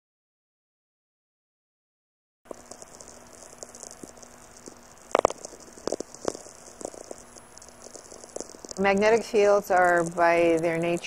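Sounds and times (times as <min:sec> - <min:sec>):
crackling radio static: 0:02.5 - 0:11.0
faint steady hum: 0:02.5 - 0:11.0
loud static pops: 0:02.5 - 0:11.0.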